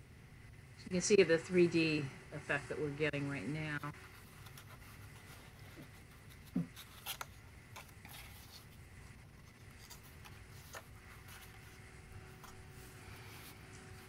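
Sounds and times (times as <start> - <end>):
paper rubbing: 3.8 - 14.0.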